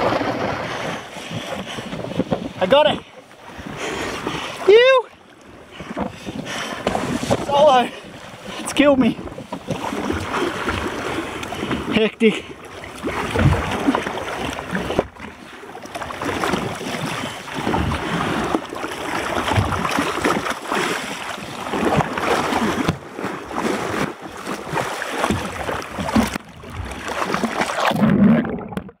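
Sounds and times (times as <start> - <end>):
water splashing against boat hull: 0.0 - 29.0
fish thrashing at surface: 23.6 - 29.0.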